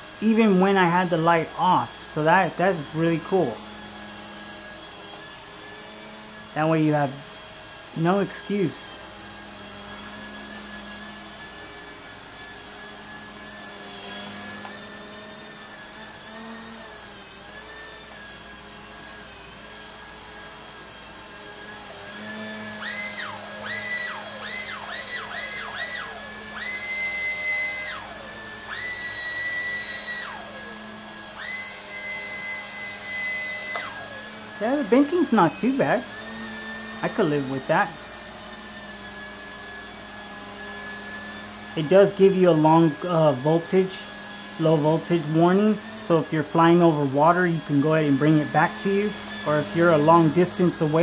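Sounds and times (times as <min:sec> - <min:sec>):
low rotor hum: 0:00.0 - 0:17.5, 0:33.4 - 0:51.0
toy helicopter motors whining: 0:00.0 - 0:51.0.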